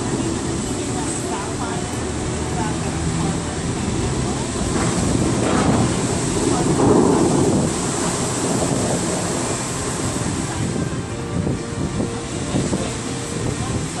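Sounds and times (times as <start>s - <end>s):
water jets falling into lake: 0.0s - 14.0s.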